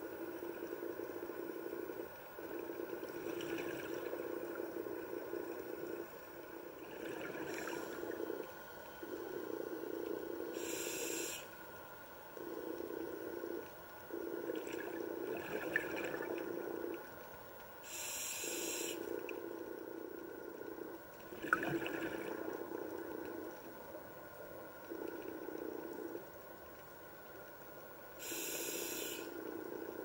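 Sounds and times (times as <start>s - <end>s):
exhaled bubbles: 0.1s - 11.4s, 12.4s - 17.2s, 17.9s - 26.3s
diver breathing through regulator: 6.9s - 11.6s, 17.8s - 19.2s, 28.2s - 30.0s.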